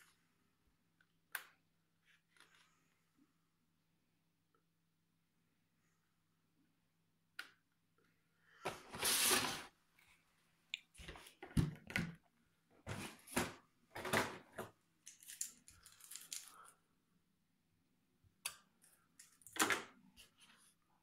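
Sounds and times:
plastic parts clicking and clattering: 12.9s - 16.7s, 18.8s - 20.0s.

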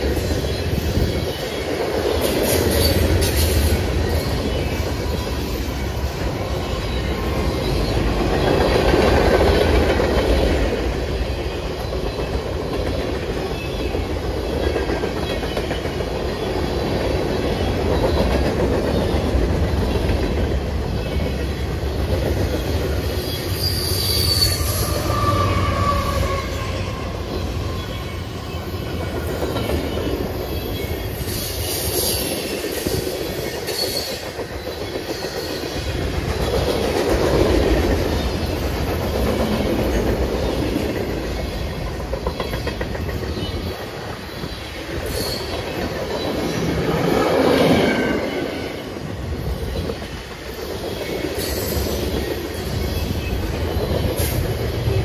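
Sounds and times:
freight train wheels rumbling: 0.0s - 55.0s
high wheel squeals: 23.4s - 28.5s.

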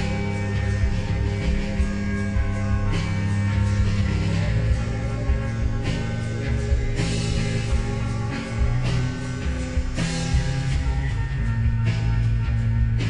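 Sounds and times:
slowed reverb-heavy rock music: 0.0s - 13.0s.

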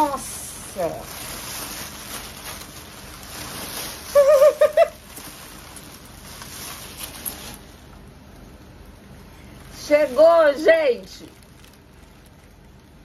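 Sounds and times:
packing paper rustling and crinkling: 0.0s - 8.4s, 9.4s - 13.0s.

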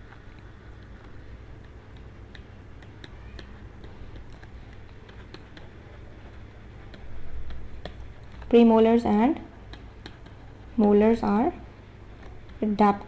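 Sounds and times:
steady low hum: 0.0s - 13.0s
stylus tapping on pen tablet: 0.3s - 8.6s, 9.6s - 11.2s.

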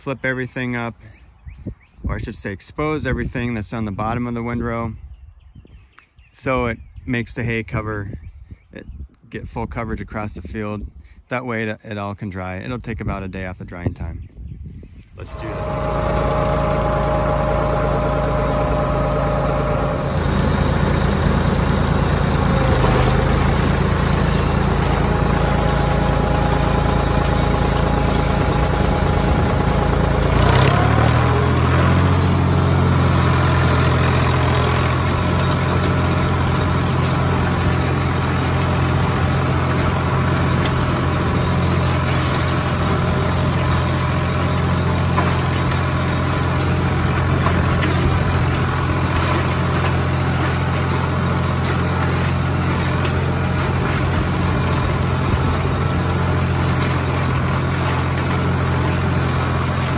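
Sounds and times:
tractor diesel engine running: 15.2s - 59.9s.

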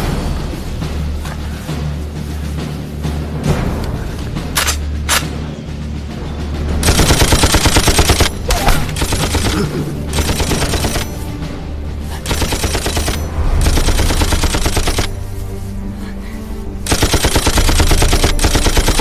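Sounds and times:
low music score: 0.0s - 19.0s
machine gun bursts: 6.8s - 11.2s, 12.2s - 15.2s, 16.8s - 19.0s.

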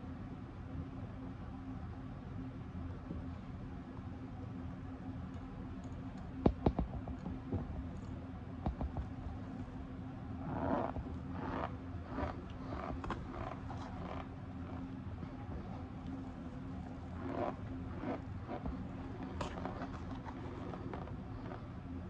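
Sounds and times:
low hum: 0.0s - 22.0s.

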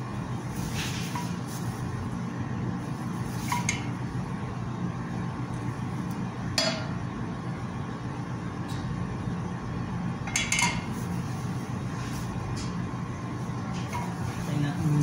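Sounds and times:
steady low hum: 0.0s - 15.0s
frying pan clinking on grate: 10.3s - 10.9s.

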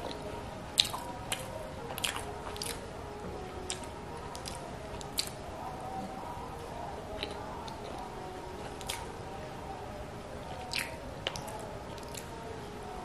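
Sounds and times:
wet chewing with mouth clicks: 0.0s - 2.8s, 3.6s - 5.4s, 7.1s - 9.1s, 10.5s - 12.3s.

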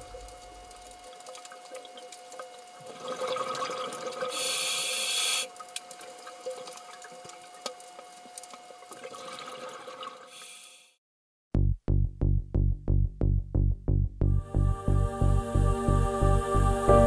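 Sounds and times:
faint steady hum: 0.0s - 11.0s, 14.3s - 17.0s
loud hiss: 4.3s - 5.5s.

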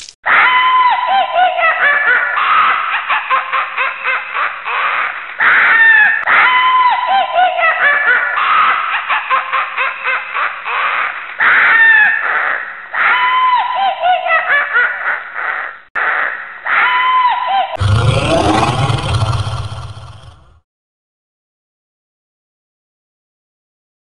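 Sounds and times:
eerie voices laughing and shrieking: 11.9s - 20.6s.

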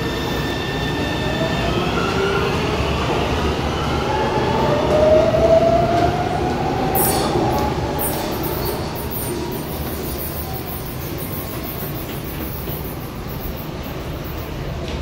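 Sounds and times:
rail rumble: 4.8s - 15.0s.

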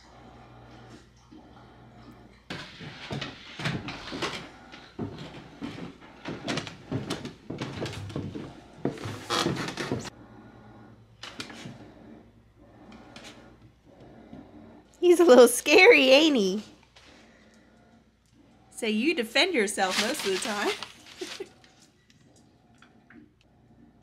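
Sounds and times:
footsteps on wooden stairs: 4.9s - 10.1s
rustling clatter: 19.6s - 21.9s.

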